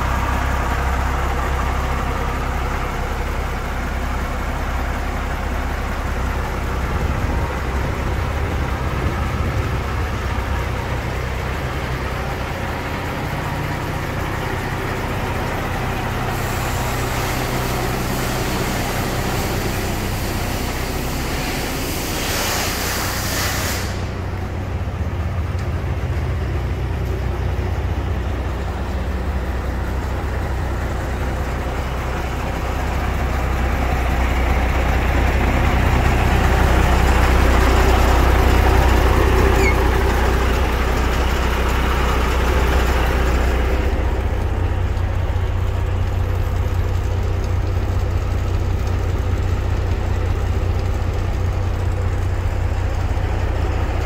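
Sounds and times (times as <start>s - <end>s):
diesel truck engine idling: 0.0s - 54.0s
hiss: 16.0s - 24.6s.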